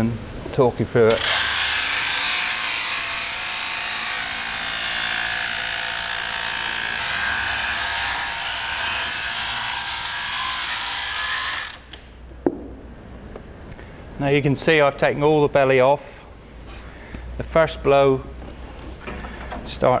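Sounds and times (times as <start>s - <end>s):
sheep shearing handpiece buzzing: 1.1s - 12.0s.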